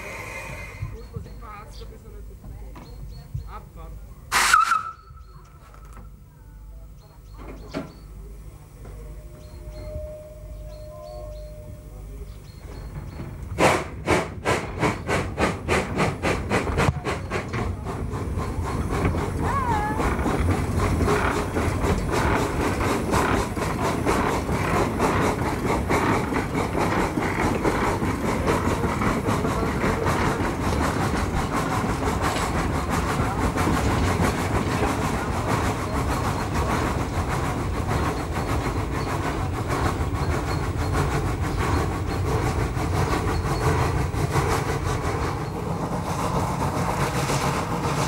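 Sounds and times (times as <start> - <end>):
steam locomotive exhaust chuffs: 0.0 - 6.2, 7.0 - 48.0.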